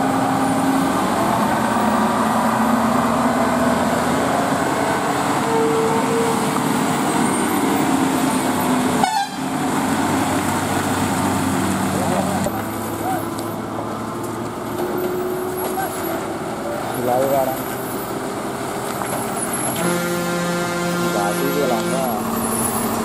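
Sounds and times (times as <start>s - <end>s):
lorry diesel engine labouring: 0.0s - 23.0s
short horn toot: 9.0s - 9.4s, 19.8s - 22.2s.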